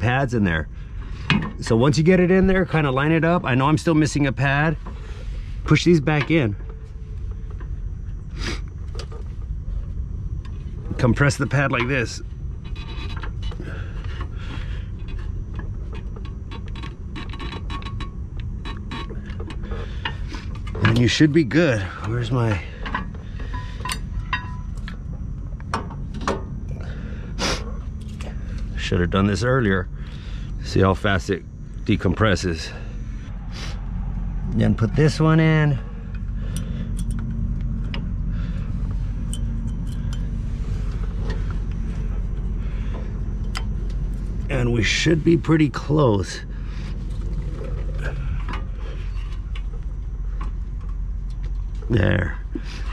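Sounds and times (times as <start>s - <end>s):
low rumble: 0.0s - 52.9s
light metallic clinks and taps: 36.5s - 38.0s, 39.3s - 40.3s.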